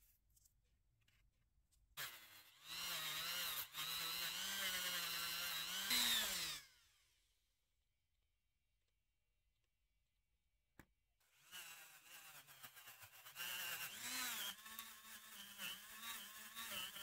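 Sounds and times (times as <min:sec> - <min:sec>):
rotary tool grinding metal: 0:02.0 - 0:06.7, 0:11.4 - 0:17.0.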